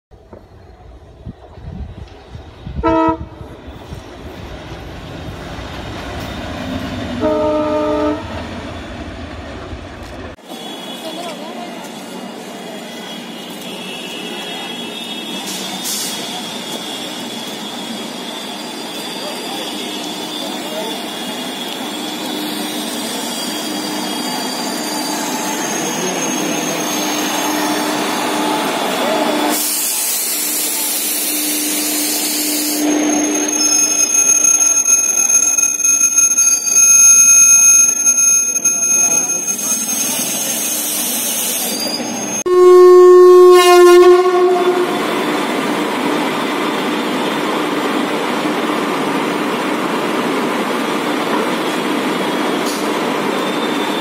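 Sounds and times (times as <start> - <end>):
electric locomotive rolling past: 0.1 - 54.0
locomotive horn: 2.8 - 3.5, 7.2 - 8.5, 31.2 - 33.8, 42.5 - 45.2.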